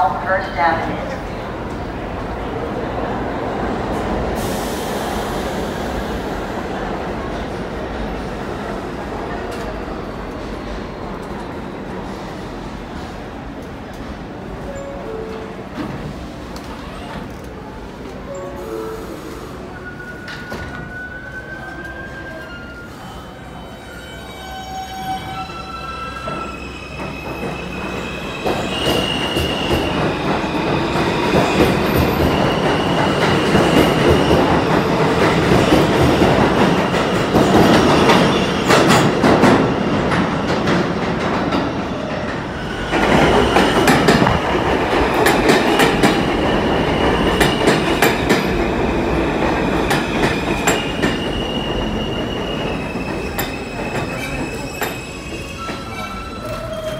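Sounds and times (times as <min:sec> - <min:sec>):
train wheels rumbling on rails: 0:26.1 - 0:56.9
high wheel squeal: 0:50.6 - 0:56.9.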